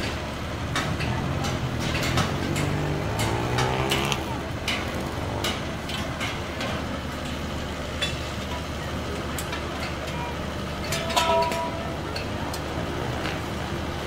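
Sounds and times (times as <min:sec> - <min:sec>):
heavy vehicle engine running: 0:00.0 - 0:14.0
steel pipe frames clanking: 0:10.8 - 0:12.6.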